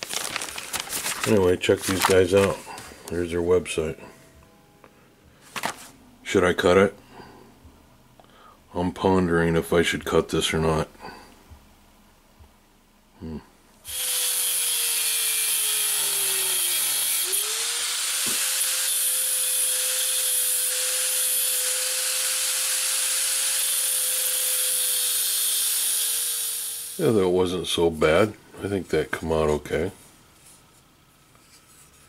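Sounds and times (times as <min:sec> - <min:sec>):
angle grinder cutting metal: 0:13.9 - 0:27.0.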